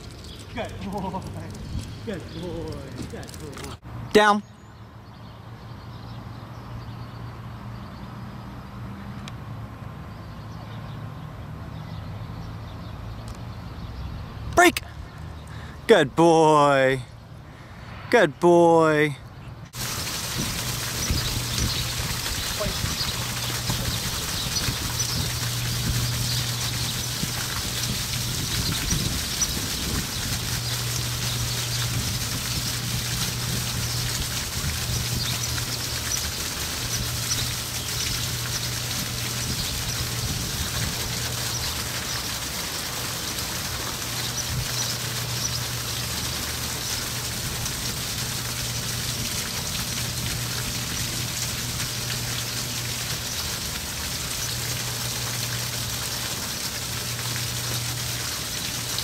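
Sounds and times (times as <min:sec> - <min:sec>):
fountain splashing into basin: 0:00.0 - 0:03.8, 0:19.8 - 0:59.0.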